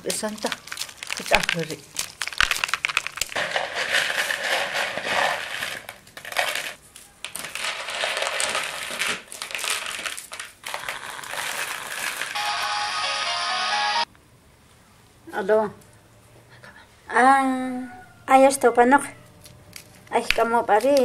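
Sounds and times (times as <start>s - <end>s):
maize kernels crackling and rattling: 0.0s - 12.4s, 19.4s - 21.0s
mobile phone ringing: 12.4s - 14.1s.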